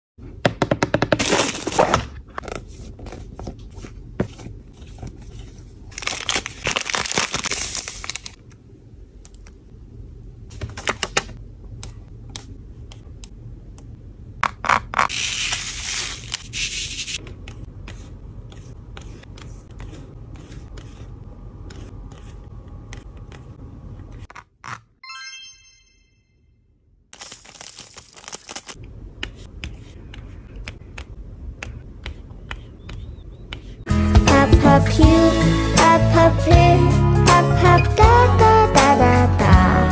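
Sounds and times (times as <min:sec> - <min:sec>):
rustling plastic packaging: 0:05.8 - 0:08.4.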